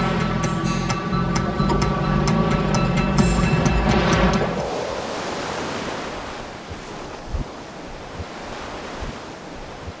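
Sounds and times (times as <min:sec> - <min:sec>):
ocean surf: 0:01.8 - 0:10.0
wind thumps on microphone: 0:06.5 - 0:10.0.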